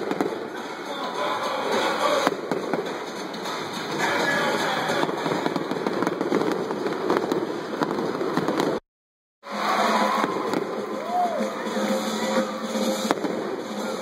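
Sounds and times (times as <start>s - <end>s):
fireworks crackling and banging: 0.0s - 8.8s, 9.5s - 14.0s.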